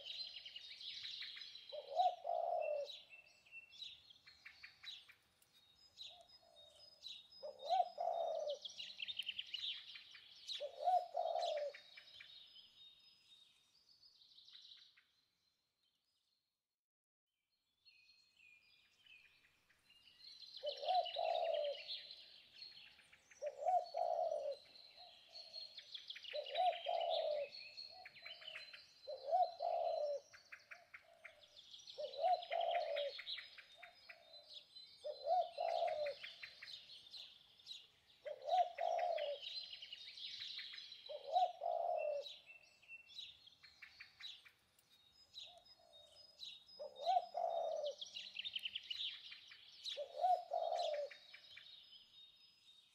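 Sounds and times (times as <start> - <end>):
birds chirping and trilling: 0.0 - 16.4, 17.9 - 52.9
bird low hooting call: 1.7 - 3.3, 6.1 - 9.9, 10.5 - 12.1, 20.6 - 22.8, 23.4 - 37.3, 38.2 - 42.8, 45.4 - 51.7.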